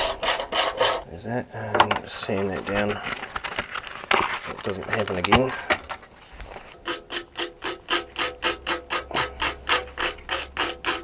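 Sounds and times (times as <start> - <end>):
sandpaper rasping on metal: 0.0 - 1.1, 6.7 - 11.0.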